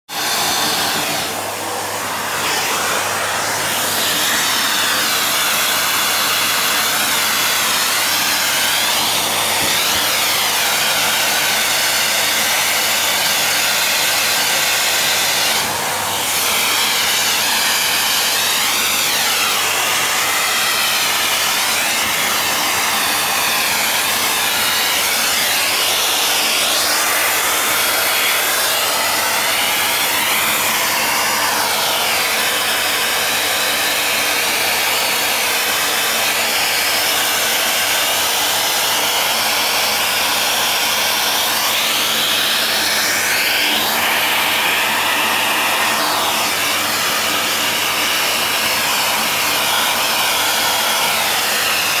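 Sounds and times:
vacuum cleaner running: 0.0 - 52.0.

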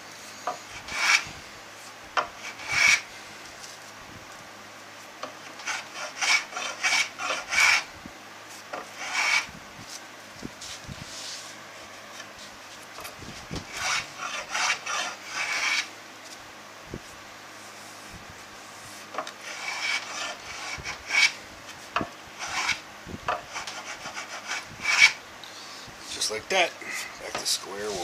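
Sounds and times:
block plane shaving wood: 0.7 - 1.3, 2.4 - 3.1, 5.5 - 7.9, 8.7 - 9.5, 13.6 - 15.9, 19.4 - 21.4, 22.4 - 22.8, 23.4 - 25.2.

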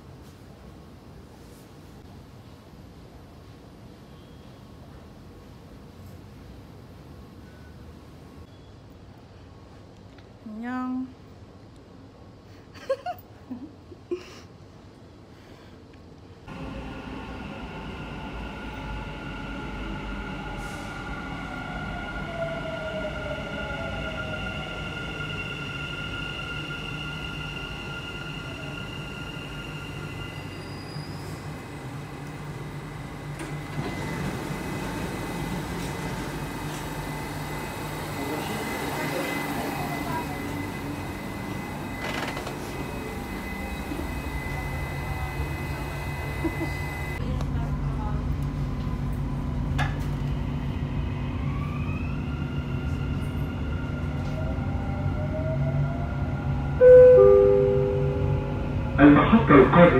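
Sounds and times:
train rumble with whining tones: 16.0 - 59.9
faint high whine: 35.8 - 47.2, 56.8 - 59.9.

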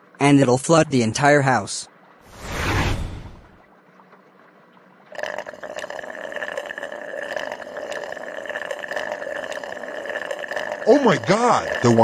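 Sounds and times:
bath faucet water pouring: 5.1 - 12.0.

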